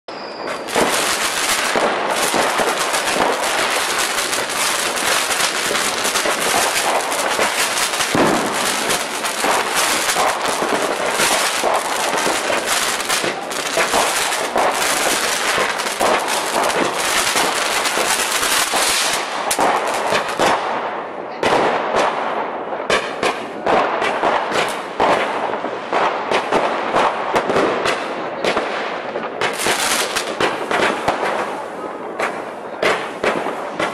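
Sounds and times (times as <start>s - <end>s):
fireworks crackling and popping: 0.1s - 33.9s.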